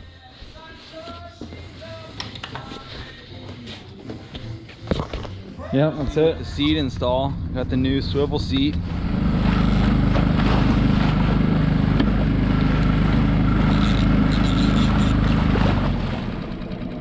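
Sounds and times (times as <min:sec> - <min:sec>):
outboard motor running: 0:06.2 - 0:17.0
water rushing along hull: 0:06.6 - 0:17.0.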